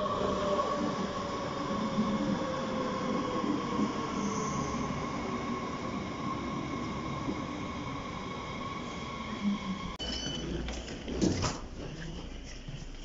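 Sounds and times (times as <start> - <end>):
electric train rolling rumble: 0.0 - 10.0
steady train whine: 0.0 - 10.0.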